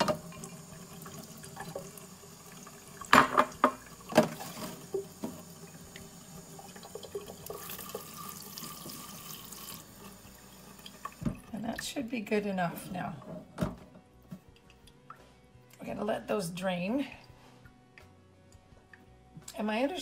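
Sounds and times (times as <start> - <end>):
tap water running into sink: 0.0 - 12.0
water spray rinsing beans: 4.0 - 11.0.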